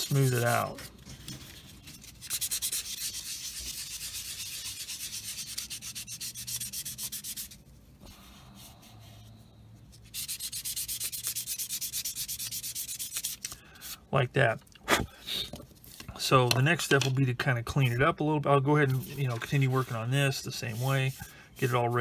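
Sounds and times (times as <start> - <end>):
sanding sponge rubbing on plastic: 1.8 - 7.6, 10.0 - 13.4, 18.9 - 22.0.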